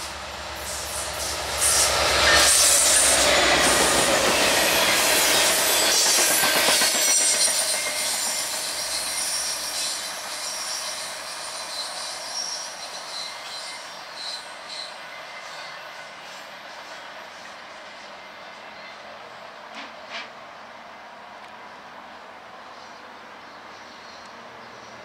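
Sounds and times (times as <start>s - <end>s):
diesel locomotive engine running: 0.0s - 10.6s
high wheel squeals: 0.6s - 16.9s.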